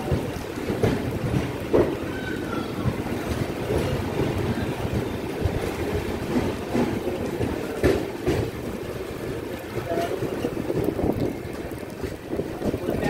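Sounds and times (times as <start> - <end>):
train rumbling on rails: 0.0 - 13.0
train sharp knocks: 0.0 - 13.0
wind buffeting microphone: 0.0 - 13.0.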